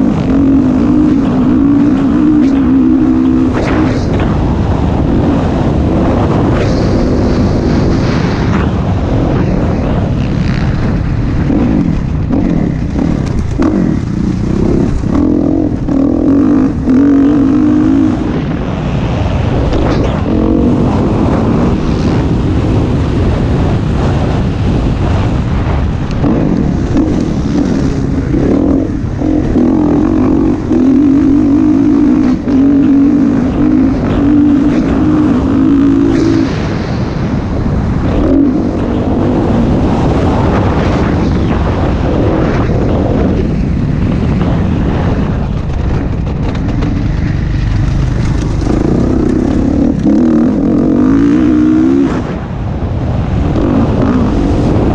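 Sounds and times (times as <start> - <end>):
dirt bike engine revving: 0.0 - 41.7, 45.9 - 52.5, 53.4 - 54.9.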